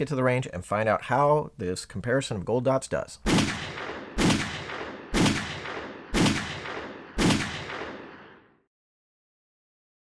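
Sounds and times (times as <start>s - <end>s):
pistol shots with echo: 3.2s - 8.5s.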